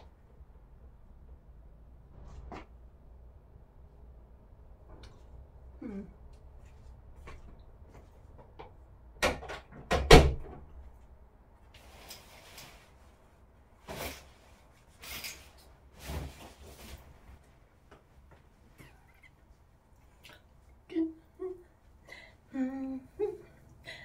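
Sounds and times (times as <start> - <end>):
door knock and clunk shutting: 9.2 - 10.6
shower curtain scraping along rail: 11.8 - 13.2, 13.8 - 17.4.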